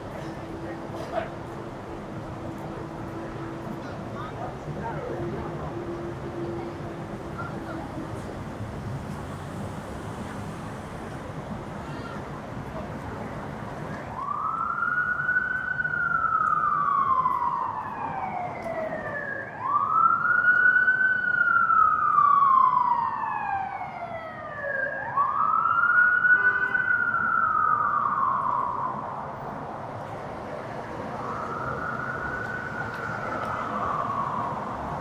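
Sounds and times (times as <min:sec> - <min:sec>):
emergency vehicle siren wailing: 0:13.7 - 0:35.0.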